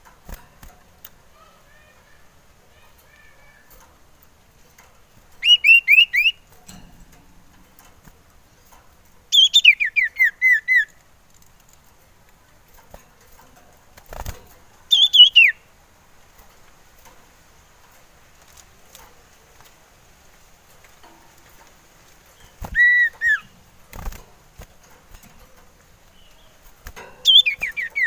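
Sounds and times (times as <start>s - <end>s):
bird singing whistled notes: 5.4s - 6.5s, 9.3s - 11.0s, 14.9s - 15.6s, 22.4s - 23.5s, 27.2s - 28.0s.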